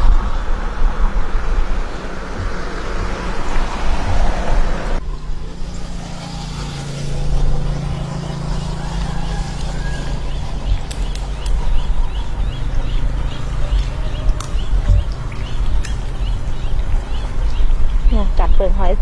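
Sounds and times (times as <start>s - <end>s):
low engine hum: 0.0s - 19.0s
passing vehicles rushing: 0.0s - 19.0s.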